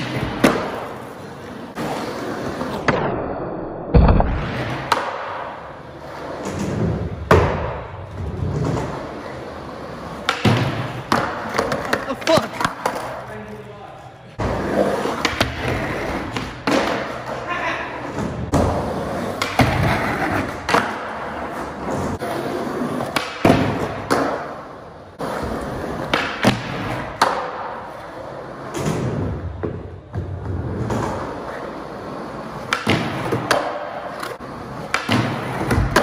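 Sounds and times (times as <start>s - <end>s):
skateboard wheels rolling on concrete: 0.0s - 3.1s, 4.2s - 36.0s
skateboard popping and landing: 3.9s - 9.1s, 10.0s - 13.3s, 14.4s - 17.4s, 18.3s - 24.6s, 25.3s - 27.9s, 32.5s - 36.0s.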